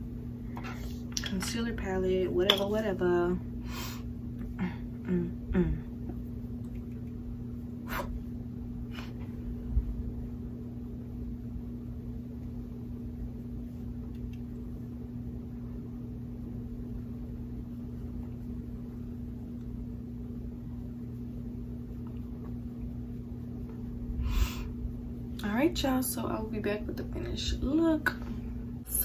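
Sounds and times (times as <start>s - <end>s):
low electrical hum: 0.0s - 29.0s.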